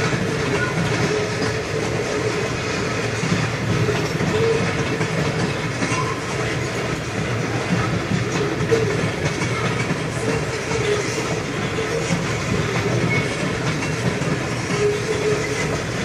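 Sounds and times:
freight train wheels on rails: 0.0 - 16.0.

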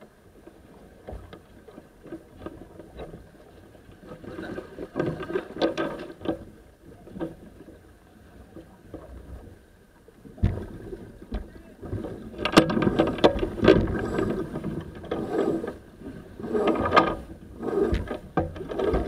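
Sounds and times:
rush of water and wind: 0.0 - 19.0.

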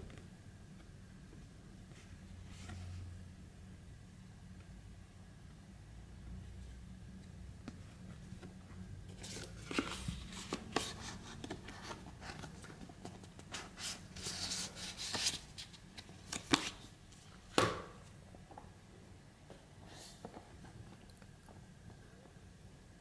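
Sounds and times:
card stock rustling and sliding: 9.1 - 16.8.

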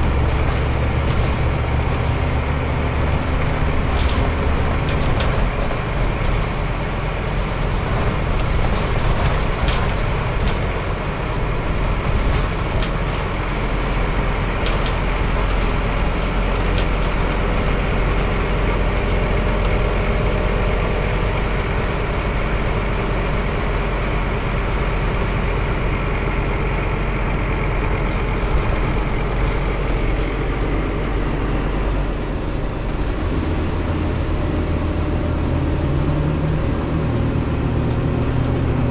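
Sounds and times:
bus engine drone: 0.0 - 38.9.

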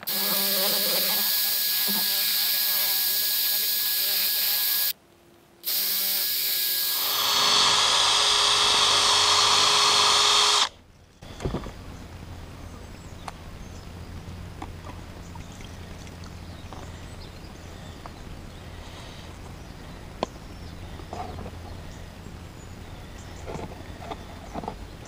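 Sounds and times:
cordless drill running: 0.0 - 5.0, 5.6 - 10.7.

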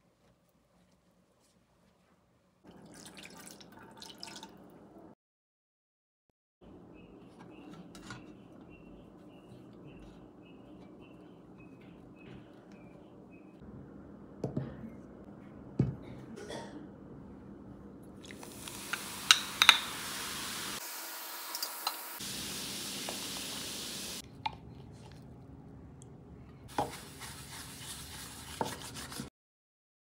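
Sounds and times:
liquid fizzing in a glass: 2.7 - 4.6.

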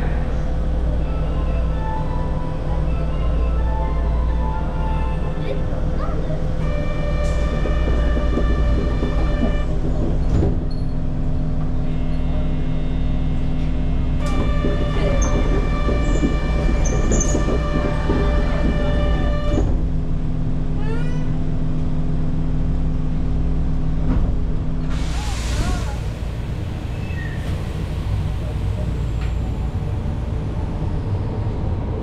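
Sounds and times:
subway train rumbling: 0.0 - 32.0
train whining tones: 0.7 - 10.9, 11.6 - 19.9.

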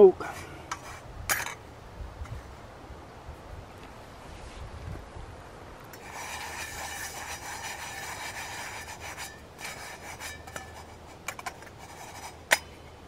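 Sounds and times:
rasping scrape in metal frying pan: 6.0 - 12.8.

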